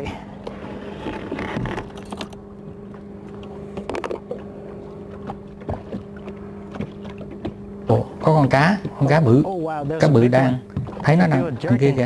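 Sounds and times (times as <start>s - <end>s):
boat motor humming: 0.0s - 12.0s
fishing tackle clicks and knocks: 3.8s - 4.4s.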